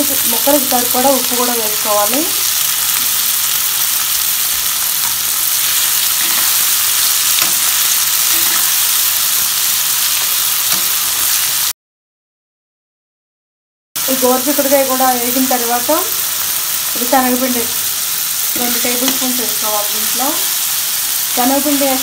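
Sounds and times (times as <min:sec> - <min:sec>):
beans sizzling in hot oil: 0:00.0 - 0:11.8, 0:14.0 - 0:22.0
spatula scraping: 0:05.0 - 0:09.0.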